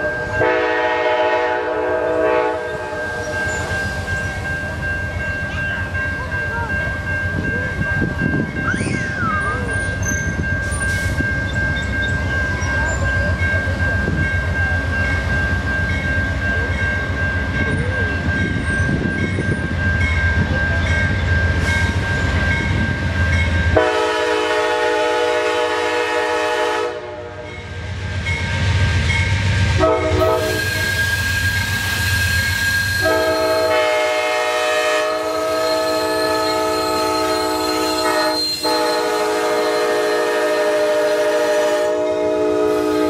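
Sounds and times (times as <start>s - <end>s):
locomotive air horn blast: 0.4s - 2.9s, 23.8s - 27.4s, 29.8s - 31.0s, 33.0s - 43.0s.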